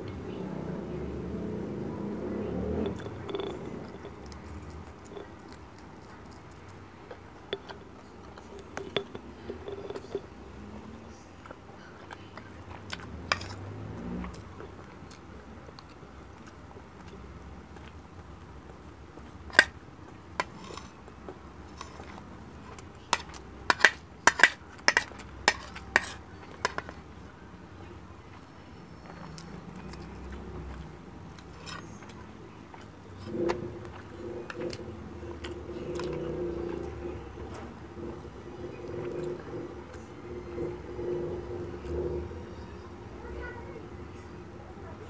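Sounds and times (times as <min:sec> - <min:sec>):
soft chewing: 0:00.0 - 0:45.0
metal spoon clinking on plate: 0:02.8 - 0:06.4, 0:07.5 - 0:10.4, 0:13.3 - 0:13.6, 0:23.2 - 0:26.9.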